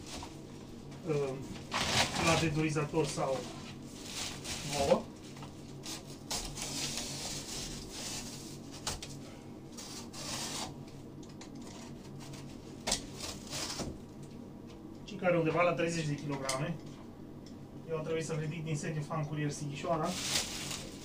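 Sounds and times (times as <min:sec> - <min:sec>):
cardboard rustling and scraping: 0:01.5 - 0:09.0, 0:09.7 - 0:10.8, 0:20.0 - 0:21.0.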